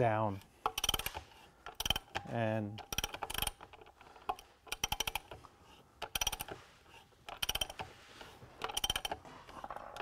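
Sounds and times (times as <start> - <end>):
ratchet wrench clicking: 0.6 - 2.2, 2.8 - 5.4, 6.0 - 6.6, 7.3 - 7.8, 8.6 - 9.2.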